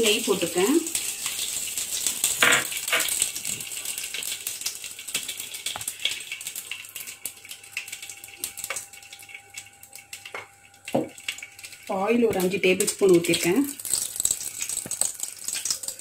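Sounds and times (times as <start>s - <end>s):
hot oil crackling and popping: 0.0s - 16.0s.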